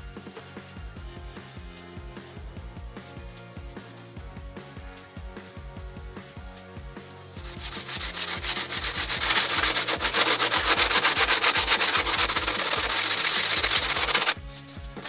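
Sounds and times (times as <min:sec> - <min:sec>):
background music with steady beat: 0:00.0 - 0:15.0
sandpaper rubbing strokes: 0:07.4 - 0:15.0.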